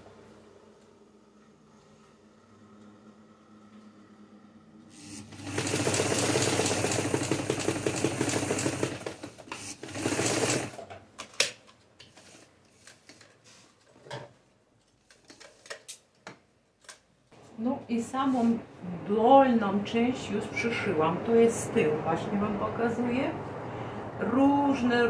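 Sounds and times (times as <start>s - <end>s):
sewing machine stitching: 4.9s - 10.8s.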